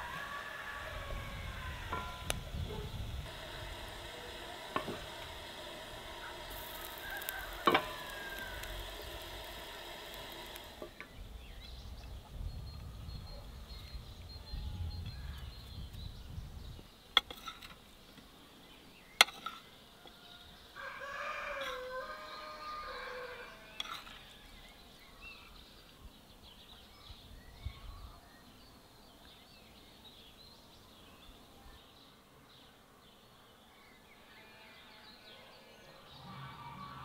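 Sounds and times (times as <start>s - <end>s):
poultry calling: 0.0s - 10.8s, 36.1s - 37.0s
sharp clicks: 4.7s - 11.0s.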